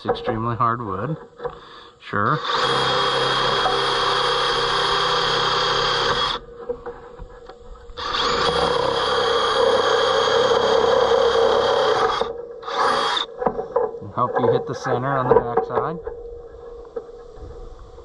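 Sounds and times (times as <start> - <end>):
cordless drill boring through wood: 1.4 - 6.9, 8.0 - 13.6.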